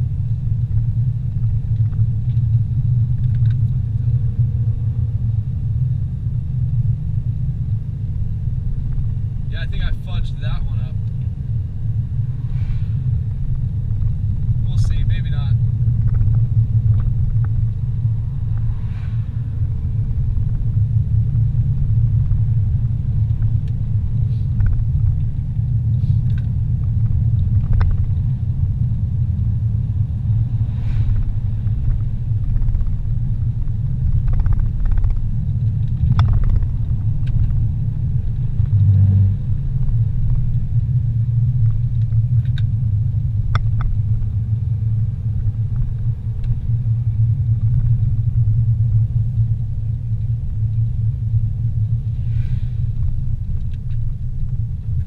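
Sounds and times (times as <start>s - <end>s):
car engine and tyre rumble: 0.0s - 55.0s.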